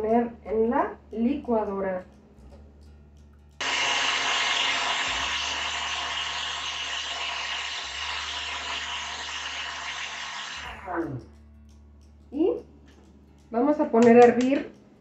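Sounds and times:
blender running: 0:03.6 - 0:10.9.

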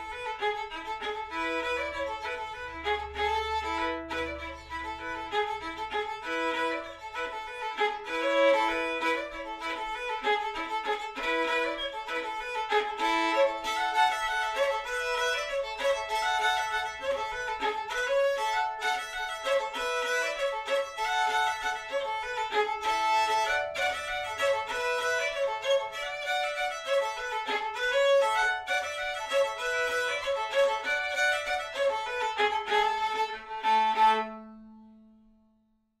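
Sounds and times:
solo fiddle folk tune: 0:00.0 - 0:35.1.

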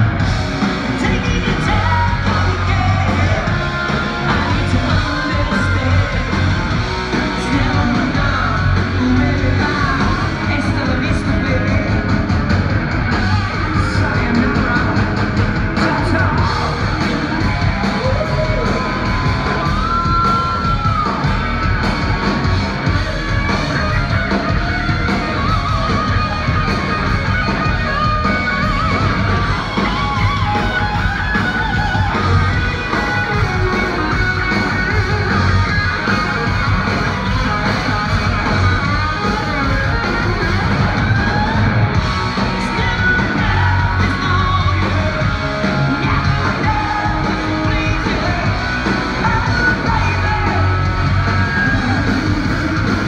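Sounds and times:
bass guitar: 0:00.0 - 0:53.0
drums: 0:00.0 - 0:53.0
electric guitars: 0:00.0 - 0:53.0
sung and shouted vocals: 0:01.0 - 0:12.1, 0:42.5 - 0:52.7.

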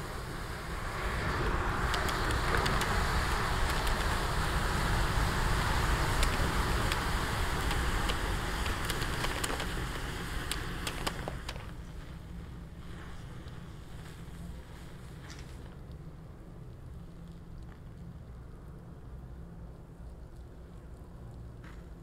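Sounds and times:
flame rushing: 0:00.0 - 0:15.7
sharp crackles: 0:00.0 - 0:19.2.

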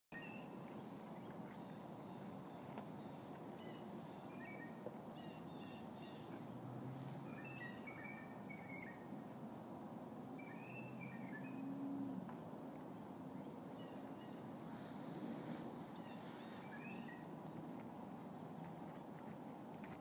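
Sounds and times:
small birds chirping: 0:12.8 - 0:17.8.

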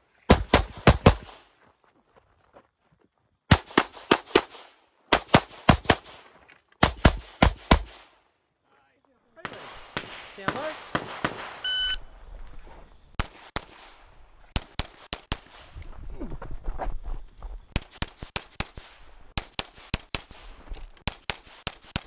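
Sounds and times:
pistol shots: 0:00.3 - 0:01.4, 0:03.5 - 0:06.2, 0:06.8 - 0:08.1, 0:09.4 - 0:11.6
electronic timer beep: 0:11.6 - 0:12.1.

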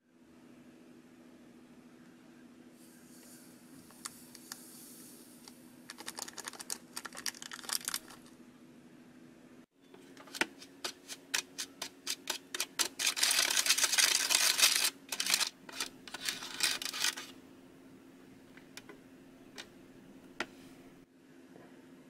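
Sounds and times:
plastic spoon clicking and scraping: 0:10.2 - 0:17.3.

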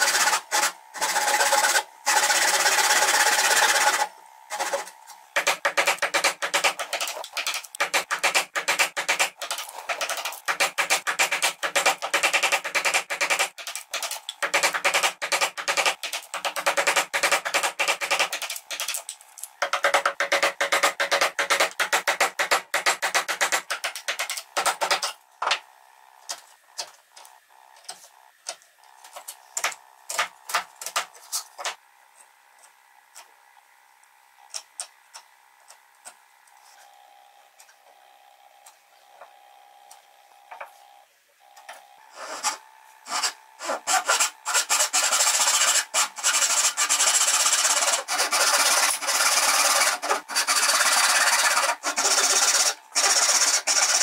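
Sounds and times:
handsaw cutting wood: 0:00.0 - 0:07.2, 0:42.0 - 0:54.0
hand tools tapping on wood: 0:05.4 - 0:25.6.

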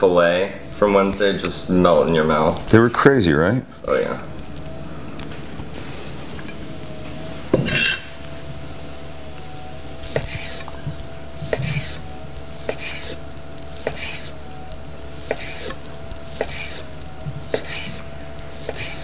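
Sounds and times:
faint hum: 0:00.0 - 0:19.0
knife slicing meat: 0:00.6 - 0:01.7, 0:10.0 - 0:19.0.

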